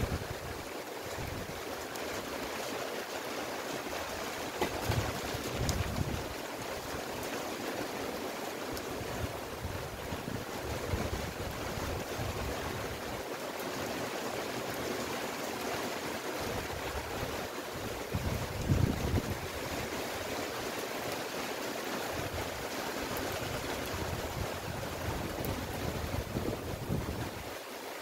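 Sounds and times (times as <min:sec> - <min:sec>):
wind gusts on microphone: 0:00.0 - 0:01.8, 0:04.7 - 0:07.0, 0:08.8 - 0:13.2, 0:16.4 - 0:20.3, 0:22.0 - 0:27.6
rain on shrubs and grass: 0:00.0 - 0:28.0.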